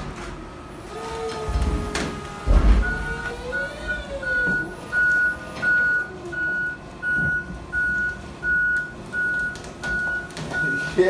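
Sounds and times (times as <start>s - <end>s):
vehicle reversing alarm beeping: 2.7s - 11.0s.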